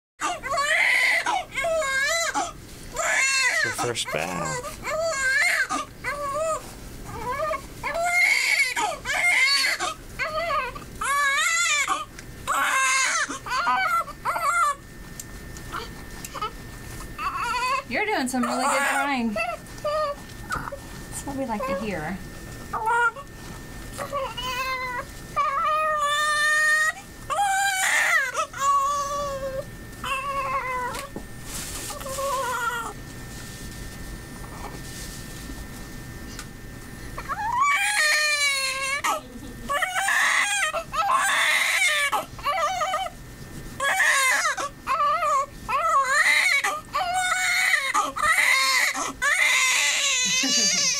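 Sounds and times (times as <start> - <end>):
baby crying: 0.2 - 6.6, 7.2 - 14.8, 17.2 - 17.8, 18.4 - 20.8, 22.8 - 23.3, 24.0 - 31.1, 32.0 - 33.0, 37.3 - 43.1, 43.8 - 50.9.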